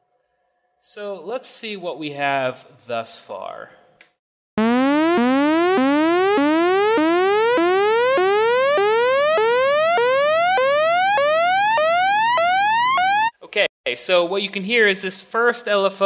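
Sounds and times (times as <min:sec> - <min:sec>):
buzzy synth riser sweeping up: 0:04.6 - 0:13.3.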